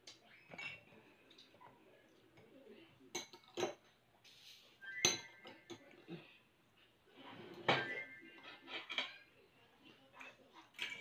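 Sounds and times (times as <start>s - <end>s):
cutlery clinking on plates: 3.1s - 4.0s, 5.0s - 6.1s, 7.5s - 9.3s, 10.2s - 11.0s.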